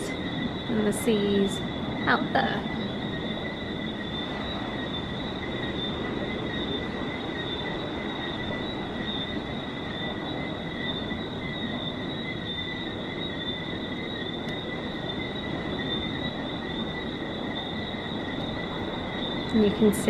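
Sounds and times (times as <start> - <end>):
low rush of noise: 0.0 - 9.0.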